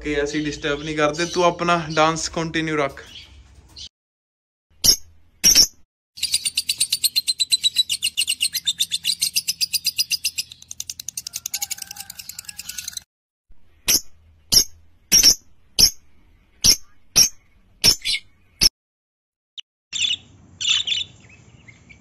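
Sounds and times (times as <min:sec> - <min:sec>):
parrots chirping: 0:04.8 - 0:13.0, 0:19.9 - 0:22.0
sharp bird calls: 0:05.4 - 0:13.1, 0:19.9 - 0:22.0.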